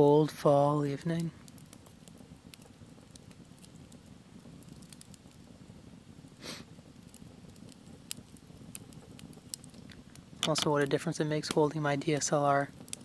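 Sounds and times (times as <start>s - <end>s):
campfire crackling and popping: 0.0s - 13.0s
short breathy hiss: 6.4s - 6.8s.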